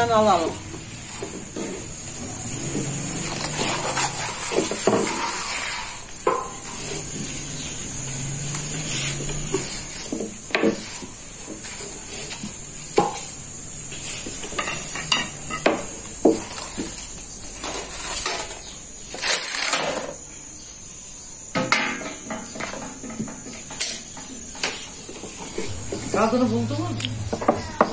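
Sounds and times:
flatbread rustling: 0.2s - 15.0s.

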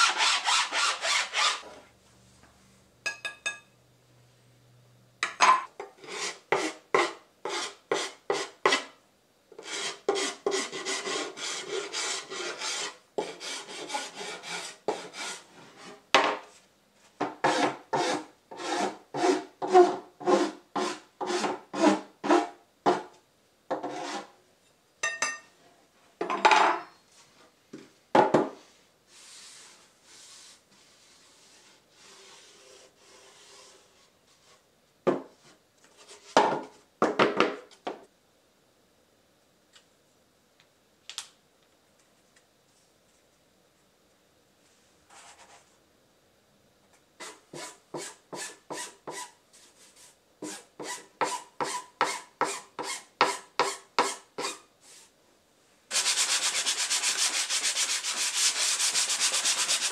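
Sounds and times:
hand file rasping: 0.0s - 1.6s, 9.6s - 15.4s, 17.5s - 22.5s, 50.4s - 54.6s, 55.9s - 59.9s.

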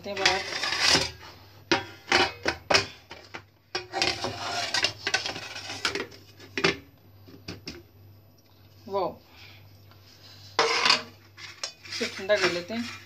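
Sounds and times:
metal rattling and scraping: 10.6s - 13.0s.

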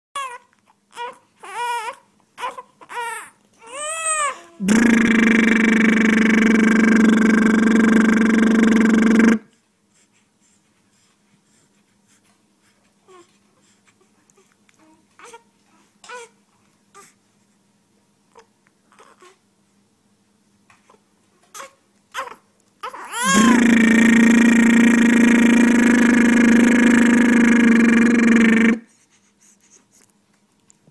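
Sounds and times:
person making buzzing noise: 4.6s - 9.6s, 23.2s - 29.0s.

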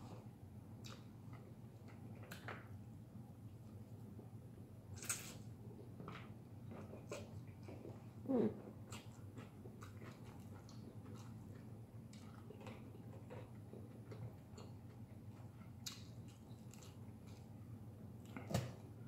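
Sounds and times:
chewing: 6.1s - 17.5s.

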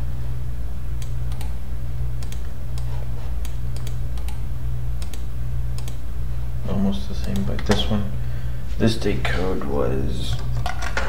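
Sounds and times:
steady low hum: 0.0s - 11.0s
keyboard keys and mouse clicking: 1.0s - 1.6s, 2.2s - 4.4s, 5.0s - 6.0s, 7.2s - 8.0s.

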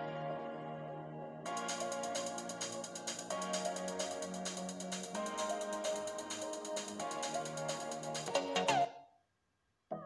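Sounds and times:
electronic chords over a beat: 1.4s - 8.7s.

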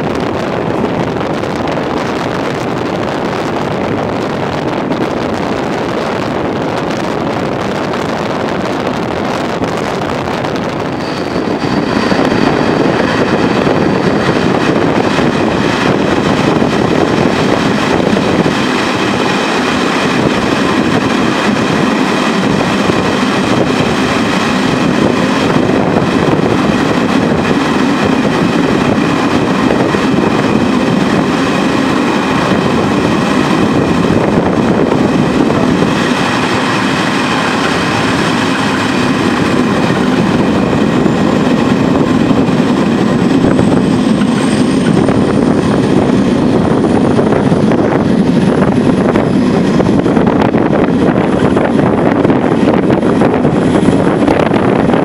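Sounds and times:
diesel locomotive drone: 0.0s - 55.0s
thin high whine: 10.1s - 51.4s.

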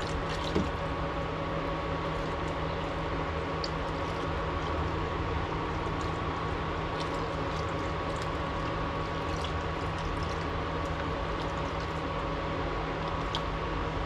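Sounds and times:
steady machine hum: 0.0s - 14.0s
liquid pouring from a pitcher: 2.0s - 12.2s.

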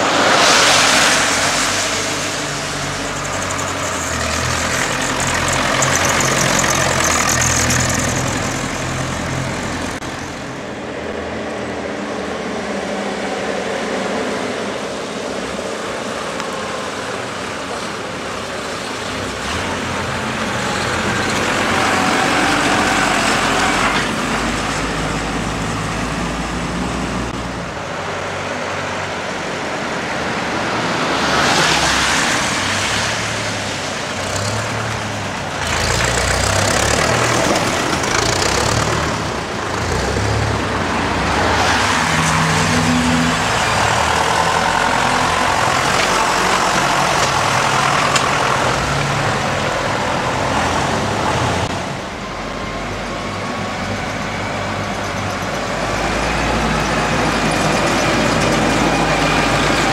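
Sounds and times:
tyre hiss on wet road: 0.0s - 5.6s
diesel tractor engines: 0.0s - 59.9s.

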